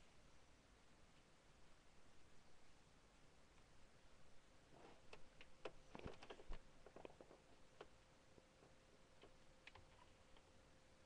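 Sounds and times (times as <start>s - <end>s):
faint scattered clicks and taps: 5.1s - 10.6s.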